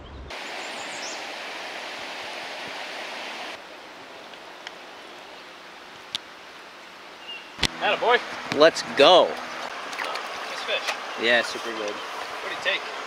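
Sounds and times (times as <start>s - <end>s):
river water rushing over rocks: 0.3s - 3.8s, 9.4s - 13.0s.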